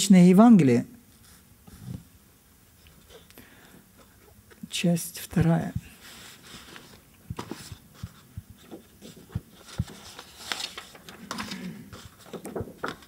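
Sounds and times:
papers and books shuffling: 0:05.3 - 0:13.0.

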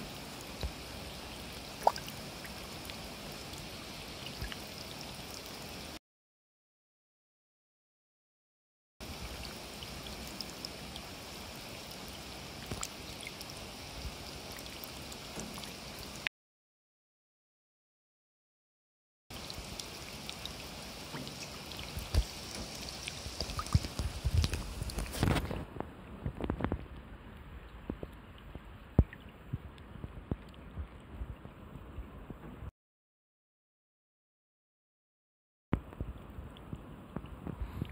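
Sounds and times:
rain pattering into water: 0:00.0 - 0:06.0, 0:09.0 - 0:16.3, 0:19.3 - 0:32.7, 0:35.8 - 0:37.9.

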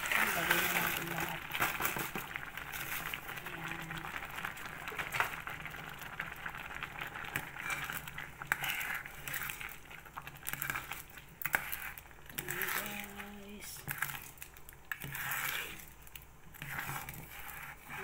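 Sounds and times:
pot boiling and bubbling: 0:00.0 - 0:18.0.

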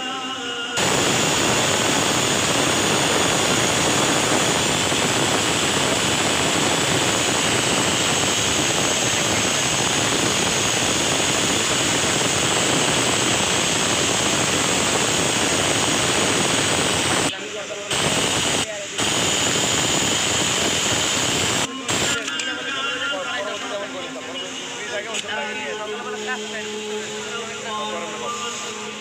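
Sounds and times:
sewing machine whirring: 0:00.8 - 0:17.3.

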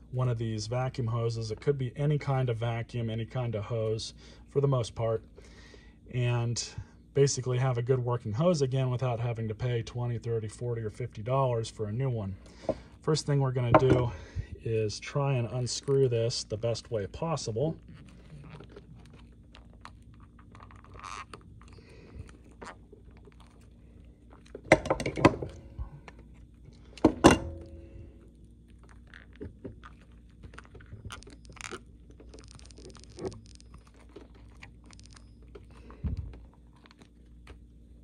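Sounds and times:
fine crackle: 0:15.7 - 0:24.6, 0:27.7 - 0:38.0
plastic hose clicking and rubbing: 0:28.9 - 0:37.6.

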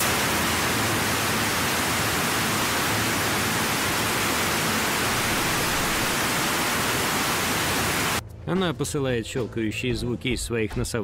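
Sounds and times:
loud static hiss: 0:00.0 - 0:08.2.

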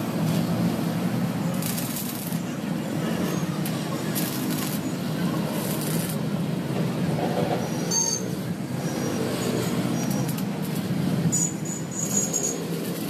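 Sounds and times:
welding arc crackling and hissing: 0:01.0 - 0:03.0, 0:03.6 - 0:06.3, 0:12.0 - 0:13.0.

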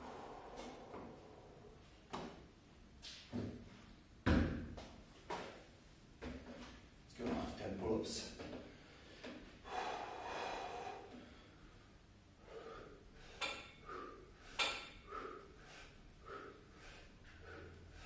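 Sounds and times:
man breathing hard: 0:00.0 - 0:01.8, 0:08.6 - 0:18.0.

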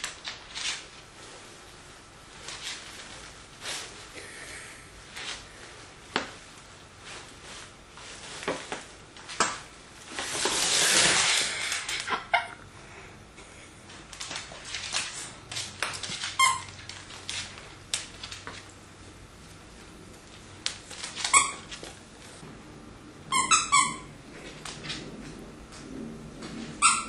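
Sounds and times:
bag dragging across wooden floor: 0:10.1 - 0:12.0
short squeak: 0:21.3 - 0:21.7, 0:26.8 - 0:27.0.

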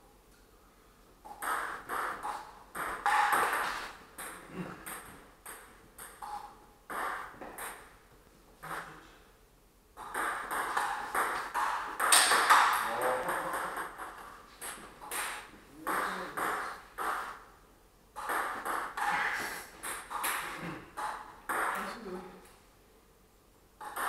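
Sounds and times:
table tennis ball hits: 0:01.2 - 0:07.9, 0:10.0 - 0:17.4, 0:18.2 - 0:21.8, 0:23.8 - 0:24.0.

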